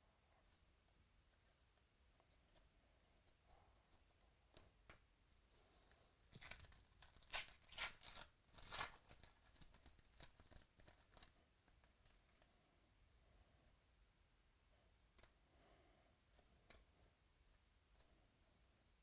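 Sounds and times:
foil crinkling: 0:06.3 - 0:11.4
foil wrapper ripping: 0:06.4 - 0:11.2.

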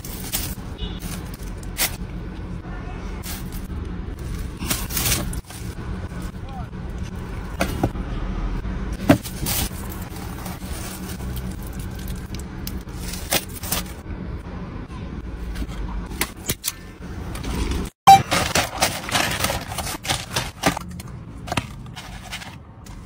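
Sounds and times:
food packaging crinkling: 0:18.2 - 0:21.1.

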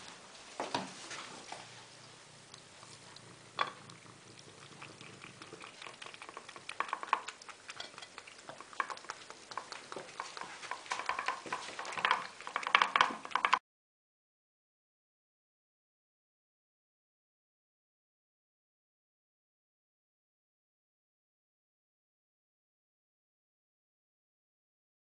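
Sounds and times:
cat lapping and chewing: 0:00.8 - 0:13.6.

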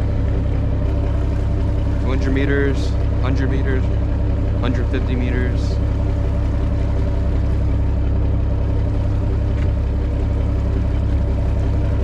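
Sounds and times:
boat engine rumbling: 0:00.0 - 0:12.0.

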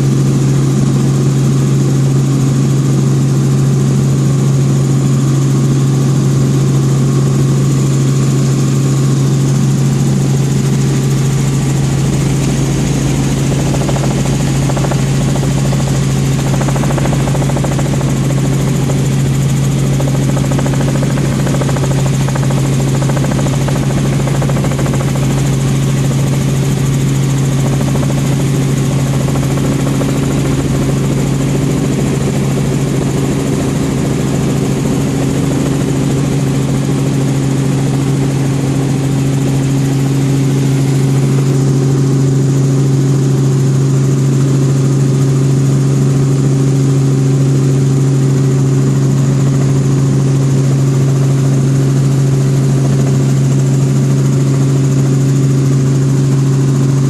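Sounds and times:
helicopter drone from inside cabin: 0:00.0 - 0:57.0.

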